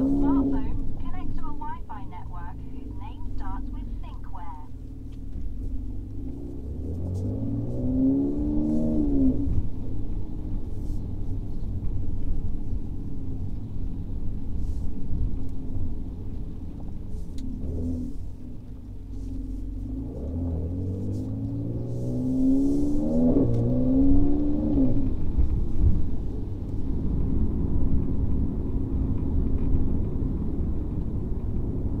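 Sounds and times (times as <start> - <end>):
car engine revving: 0.0 - 11.4, 15.9 - 29.5.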